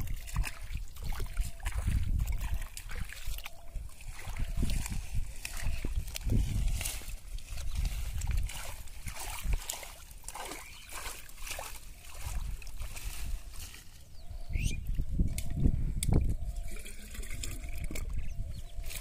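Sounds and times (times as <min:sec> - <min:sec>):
hands splashing in shallow water: 0:00.0 - 0:13.9
wet plants rustling: 0:00.0 - 0:19.0.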